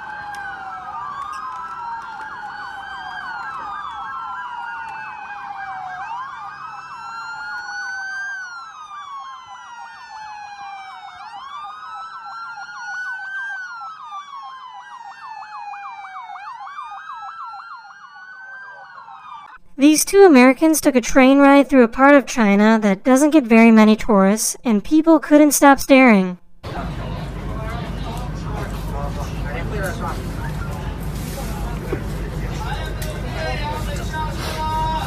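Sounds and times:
police siren yelp: 0:00.0 - 0:23.8
police sirens wailing: 0:00.0 - 0:31.3.

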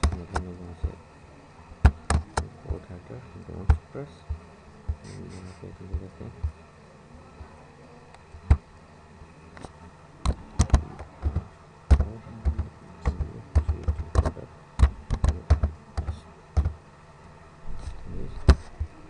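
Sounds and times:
typing on computer keyboard: 0:10.3 - 0:16.8.

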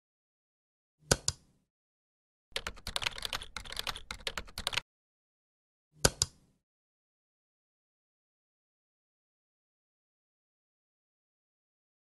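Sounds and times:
typing on computer keyboard: 0:02.5 - 0:04.8.

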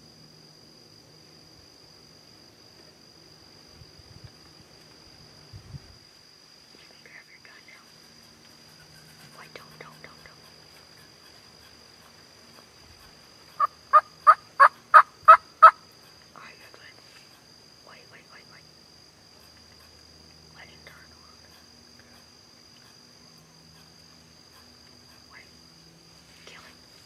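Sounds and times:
turkey yelping: 0:13.6 - 0:15.8.

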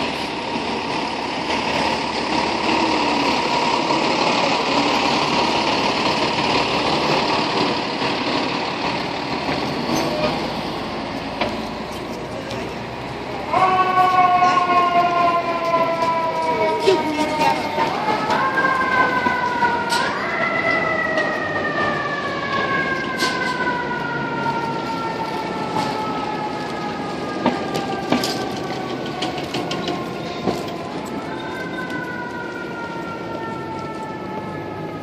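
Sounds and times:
fire engine siren winding: 0:13.4 - 0:35.0.

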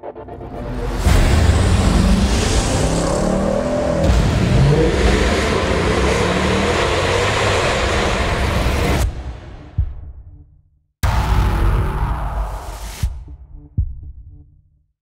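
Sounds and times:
car engine accelerating: 0:00.4 - 0:09.0
loud exhaust roar: 0:00.5 - 0:09.0.

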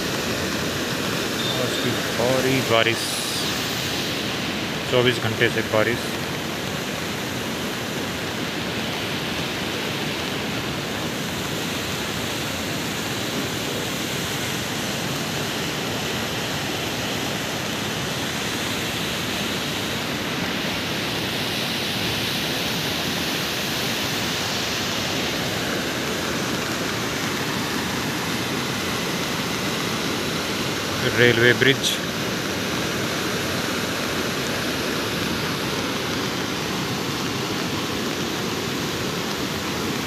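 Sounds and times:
river rushing roar: 0:00.0 - 0:40.0.

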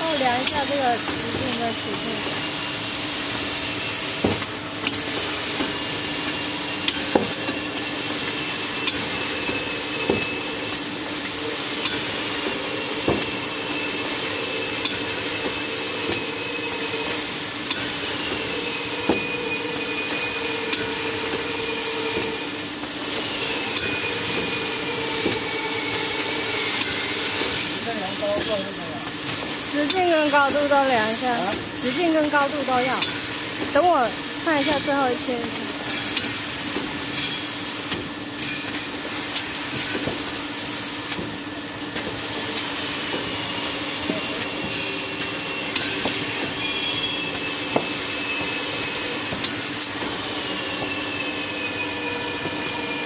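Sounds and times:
band saw hiss and hum: 0:00.0 - 0:53.0.

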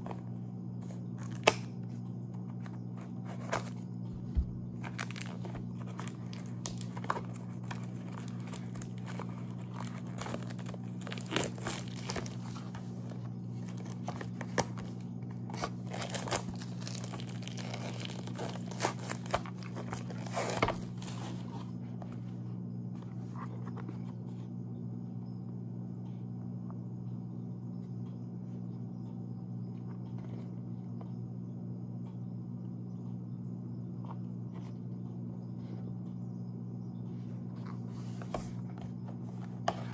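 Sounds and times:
steady low hum: 0:00.0 - 0:39.9
plastic wrapping crinkling: 0:04.7 - 0:21.6.

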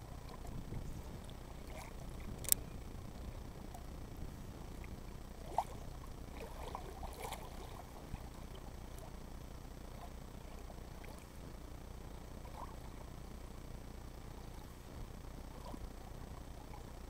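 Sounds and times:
faint low rumble: 0:00.0 - 0:17.0
small ticks: 0:01.2 - 0:02.8
sharp click: 0:02.4 - 0:02.6.

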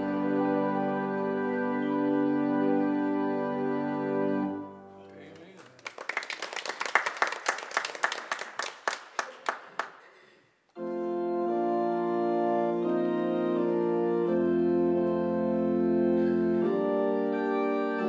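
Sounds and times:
organ sustained chords: 0:00.0 - 0:05.1, 0:10.8 - 0:18.0
hand clapping: 0:05.0 - 0:10.2.

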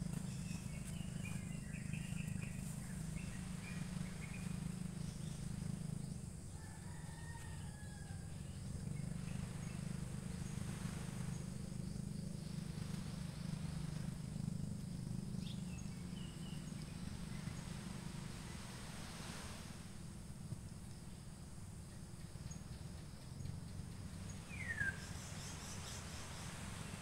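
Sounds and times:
low rumble: 0:00.0 - 0:06.5
insect drone: 0:00.0 - 0:27.0.

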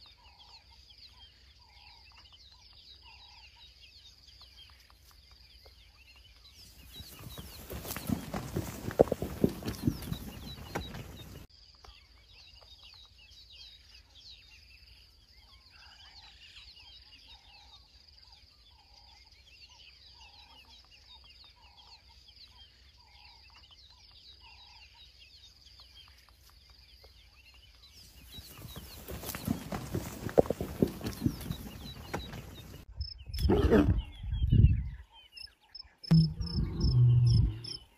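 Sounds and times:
rustling and knocks: 0:07.0 - 0:11.5, 0:28.5 - 0:32.8.

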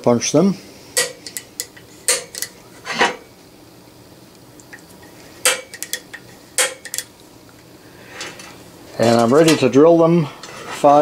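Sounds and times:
center punch metallic snaps: 0:01.0 - 0:02.6, 0:05.5 - 0:07.1.

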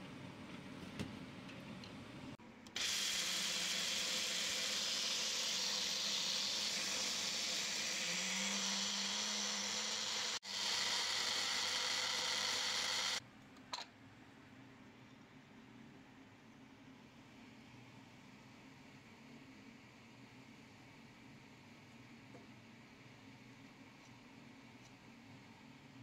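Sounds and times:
blender motor whirring: 0:02.7 - 0:13.2.

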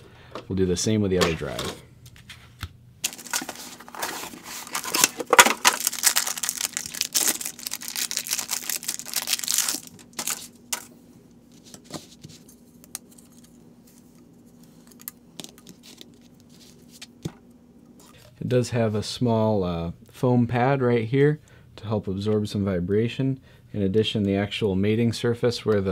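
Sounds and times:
packaging tearing and crinkling: 0:03.0 - 0:10.9.

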